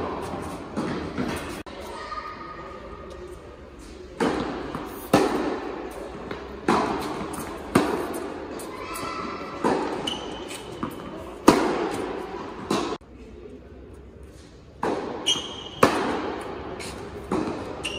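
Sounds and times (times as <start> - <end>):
tennis ball bouncing on court: 4.2 - 8.3, 9.5 - 13.0, 14.8 - 17.9
tennis ball struck by rackets: 4.2 - 8.3, 10.8 - 13.0, 14.8 - 16.6, 17.2 - 17.8.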